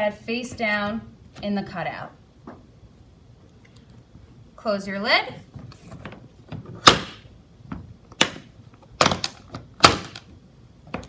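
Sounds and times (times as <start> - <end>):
plastic latches clicking: 9.0 - 10.3.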